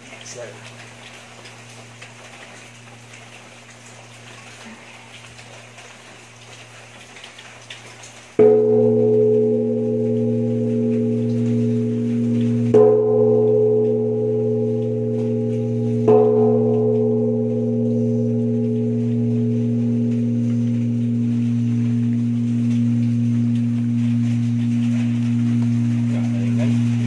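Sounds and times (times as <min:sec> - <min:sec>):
bronze bell ringing: 0:08.4 - 0:27.0
low hum: 0:08.4 - 0:27.0.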